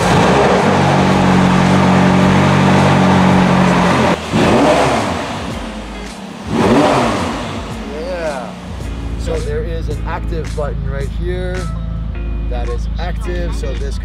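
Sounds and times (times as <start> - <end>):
engine rev blip: 0.0 - 10.6
car engine idling: 0.0 - 14.0.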